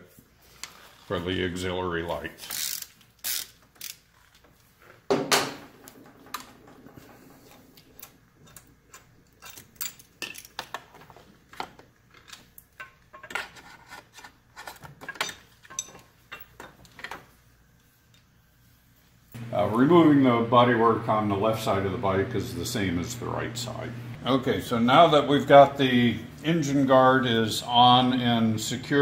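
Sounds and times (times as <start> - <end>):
hand ratchet clicking: 2.4 - 4.2.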